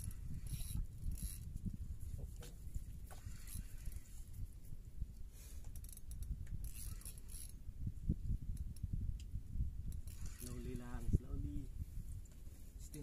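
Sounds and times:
fishing reel gears whirring: 0.0 - 1.5, 3.1 - 4.4, 5.7 - 7.6, 9.9 - 11.2.

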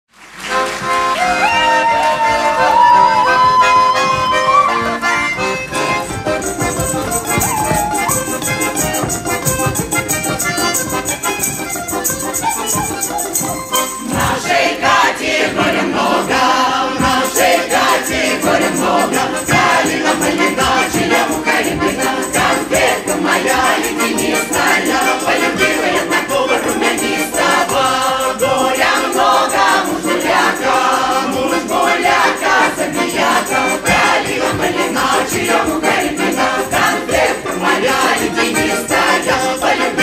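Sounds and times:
accordion folk tune: 0.1 - 40.0.

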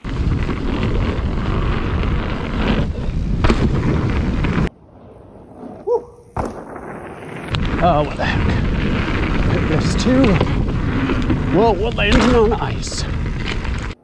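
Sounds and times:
mountain bike rumbling over dirt: 0.0 - 4.7, 6.2 - 14.0
wind buffeting microphone: 7.5 - 14.0.

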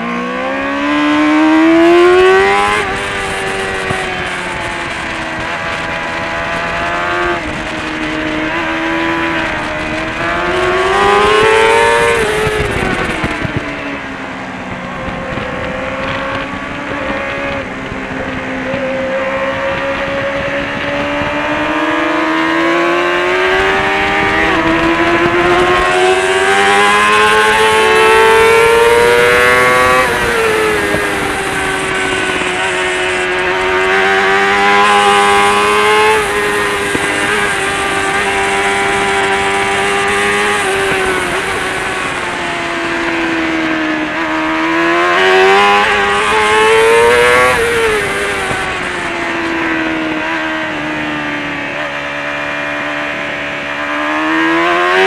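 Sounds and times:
motorcycle engine revving: 0.0 - 55.0
wind rushing across microphone: 0.0 - 55.0.

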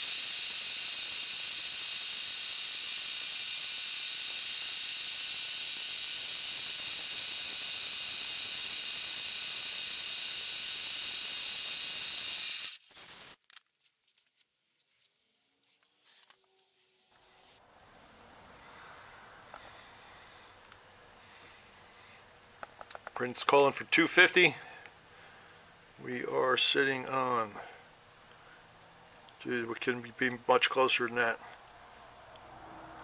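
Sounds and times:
milling machine cutting metal: 0.0 - 12.8.

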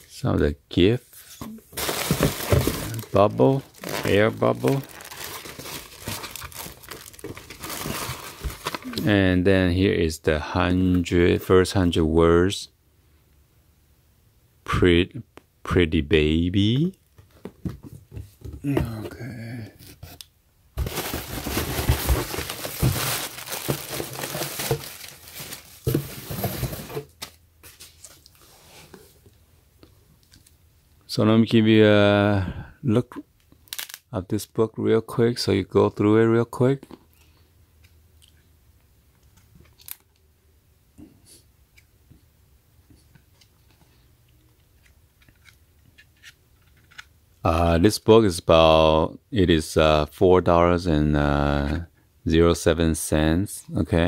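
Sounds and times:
plastic packing material crinkling: 1.8 - 9.0, 20.8 - 27.0.

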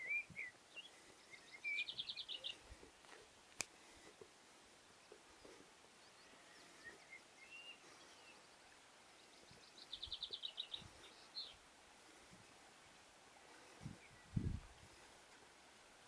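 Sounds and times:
songbird chirps and trill: 0.0 - 4.1, 4.8 - 12.6.

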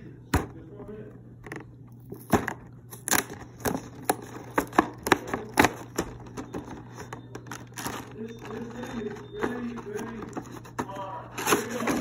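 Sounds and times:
plastic packaging crackling: 2.1 - 12.0.

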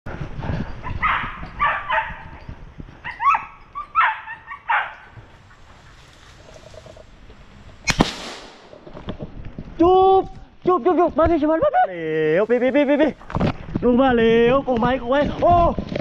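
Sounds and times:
dogs barking: 0.8 - 5.2.

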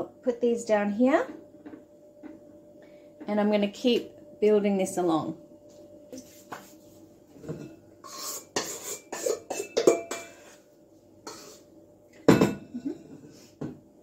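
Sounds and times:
metal bowl and utensils clinking: 7.4 - 10.6
bowl knocking on steel benchtop: 12.3 - 12.7.

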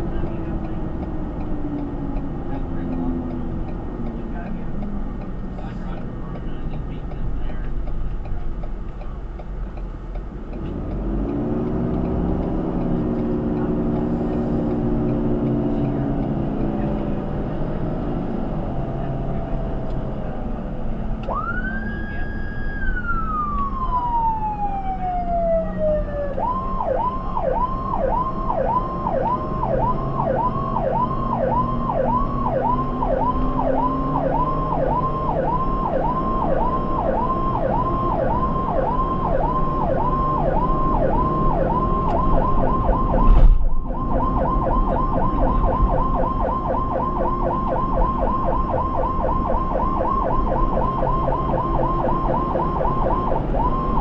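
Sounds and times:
engine and road noise: 0.0 - 54.0
electronic siren yelp: 21.3 - 54.0
brief thump: 43.2 - 43.8.

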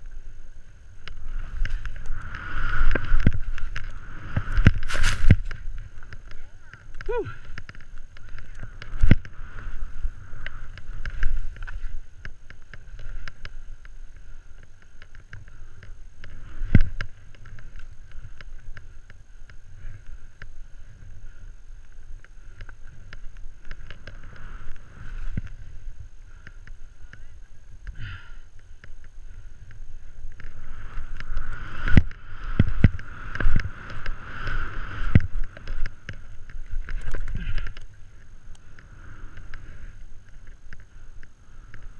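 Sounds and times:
skis thumping on bumps: 0.0 - 41.9
skis hissing through snow: 0.2 - 5.9, 29.3 - 36.0.

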